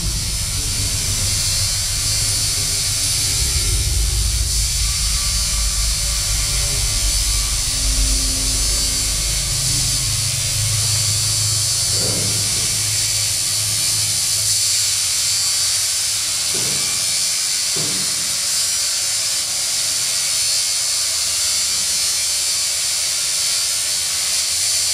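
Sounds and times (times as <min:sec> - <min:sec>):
electronic noise music: 0:00.0 - 0:15.2
low drone: 0:00.0 - 0:16.3
high hiss and buzz: 0:00.0 - 0:24.9.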